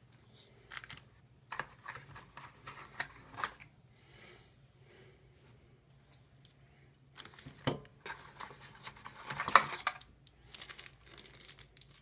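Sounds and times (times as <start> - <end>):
plastic packaging crinkling: 0.7 - 3.6, 7.2 - 12.0.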